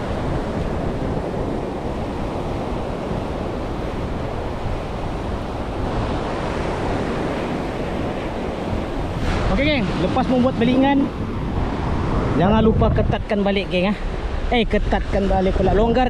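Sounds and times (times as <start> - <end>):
ocean surf breaking on beach: 0.0 - 16.0
wind buffeting microphone: 0.0 - 16.0.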